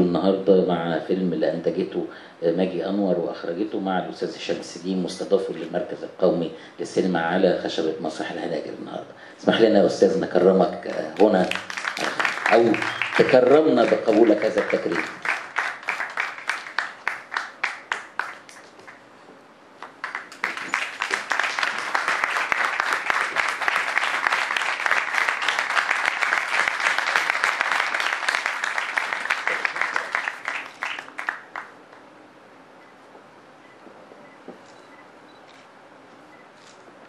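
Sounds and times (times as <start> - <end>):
audience applause: 10.9 - 19.0, 19.8 - 31.8.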